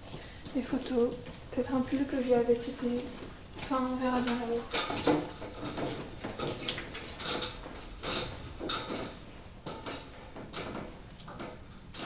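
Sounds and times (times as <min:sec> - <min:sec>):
footsteps with light knocks: 0:00.0 - 0:11.7.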